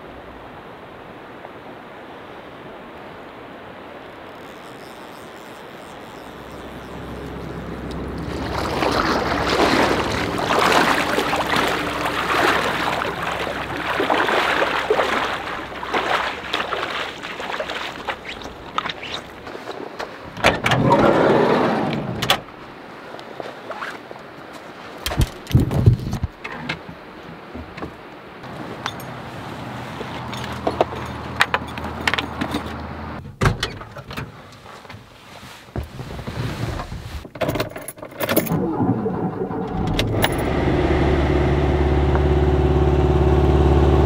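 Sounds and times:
river flowing: 0.0 - 25.0, 28.0 - 33.2
water rush: 0.0 - 25.5, 26.7 - 33.2, 38.2 - 44.0
water sloshing around wading legs: 4.3 - 20.4, 28.4 - 32.7.

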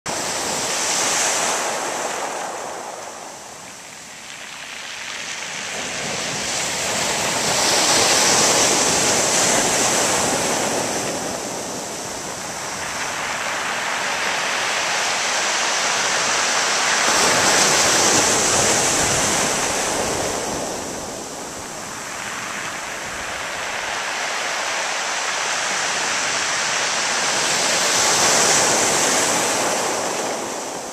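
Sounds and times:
waves breaking on pebble beach: 0.1 - 30.9.

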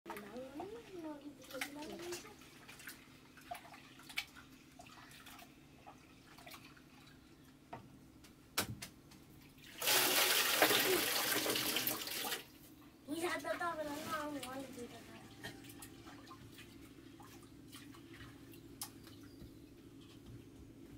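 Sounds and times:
water pouring from metal pot: 9.7 - 12.4.

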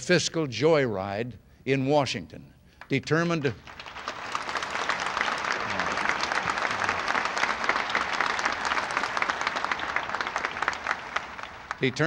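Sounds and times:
crowd applauding: 3.4 - 12.0.

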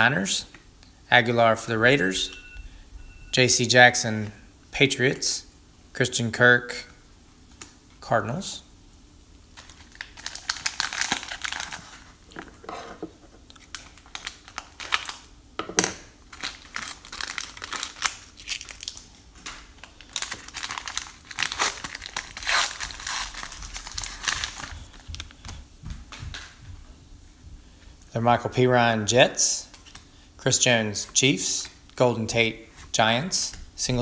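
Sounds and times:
plastic wrapper crinkling: 9.6 - 12.4, 13.4 - 15.3, 16.3 - 25.6.

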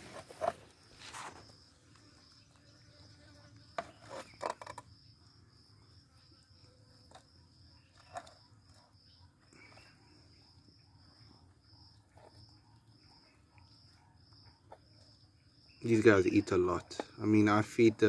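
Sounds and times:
tortoises biting squash: 0.0 - 2.6, 3.6 - 5.4, 6.9 - 15.8
insect trilling: 0.0 - 18.0.

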